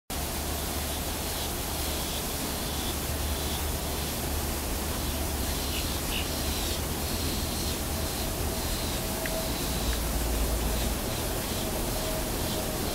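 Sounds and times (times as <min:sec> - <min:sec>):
steady hiss: 0:00.1 - 0:12.9.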